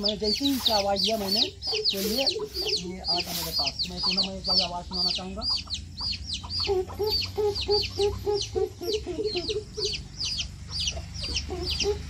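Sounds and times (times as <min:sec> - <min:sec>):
bird chirping: 0:00.0 - 0:12.0
person imitating hooting bird call: 0:06.6 - 0:10.0.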